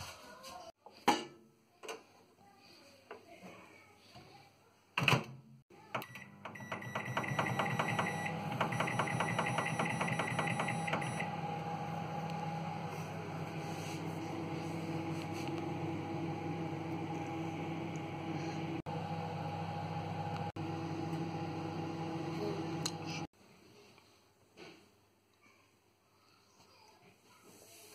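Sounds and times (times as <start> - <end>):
microwave oven humming: 5.8 - 23.3.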